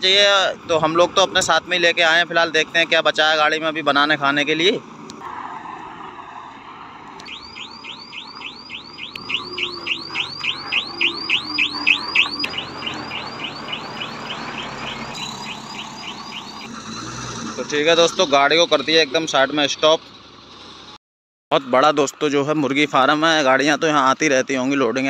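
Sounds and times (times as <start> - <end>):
truck reversing alarm chirping: 7.2 - 18.4.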